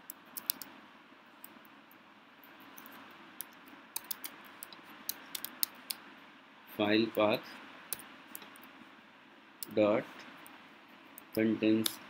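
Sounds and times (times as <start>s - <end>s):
keyboard key clicks: 0.1s - 0.7s, 5.1s - 6.0s.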